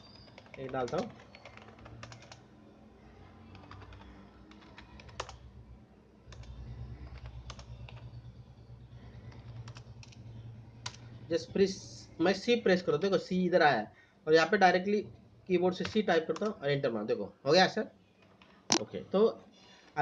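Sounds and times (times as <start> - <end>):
keyboard typing: 0.0 - 5.6, 6.2 - 11.2, 15.7 - 16.6
low steady hum: 0.0 - 20.0.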